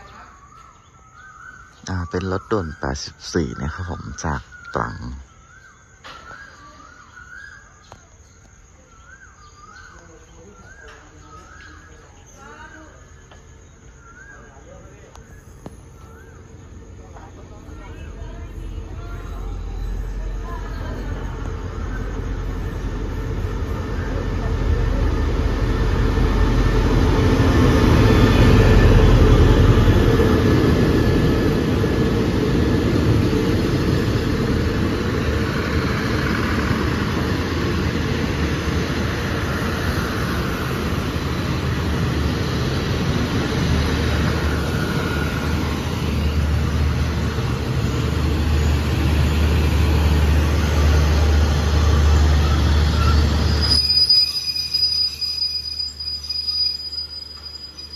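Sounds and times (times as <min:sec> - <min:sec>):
diesel locomotive engine: 0:00.0 - 0:57.9
train coaches rolling past: 0:00.0 - 0:57.9.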